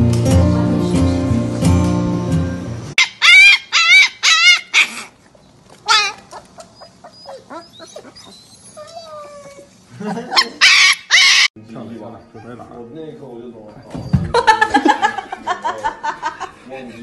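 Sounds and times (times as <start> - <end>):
puppy yelping: 3.0 - 5.2, 5.8 - 11.6, 12.2 - 12.9
puppy whimpering: 5.8 - 9.8, 12.2 - 12.8.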